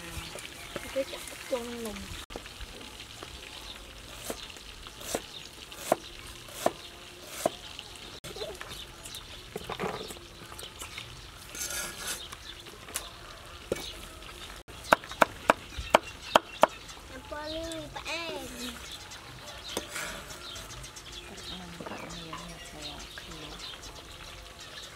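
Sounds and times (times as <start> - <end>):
cleaver chopping on wooden board: 5.8 - 7.6
scraping onto metal tray: 11.5 - 12.3.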